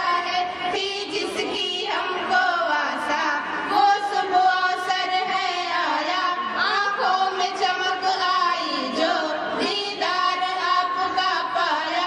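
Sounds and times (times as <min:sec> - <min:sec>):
girls singing together: 0:00.0 - 0:12.0.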